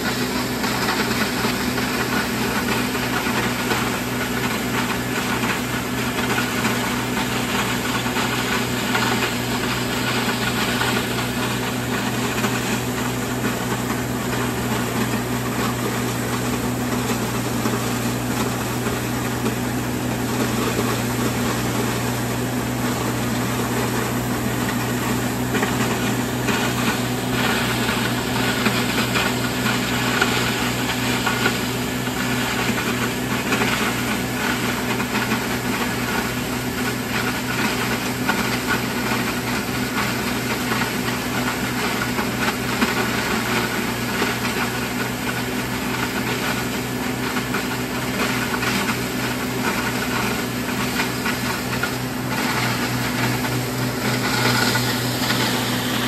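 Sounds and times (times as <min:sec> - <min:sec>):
feed grinder grinding corn: 0:00.0 - 0:56.0
tractor engine running: 0:00.0 - 0:56.0.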